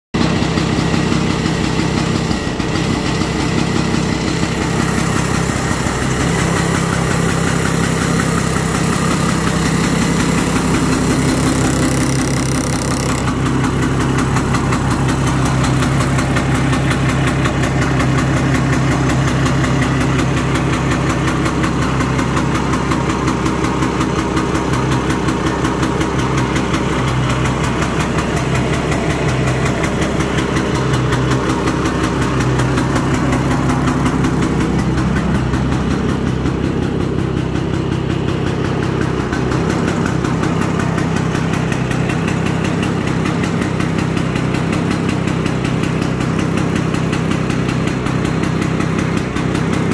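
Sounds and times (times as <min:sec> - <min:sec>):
snowmobile engine idling: 0:00.2 - 0:49.9.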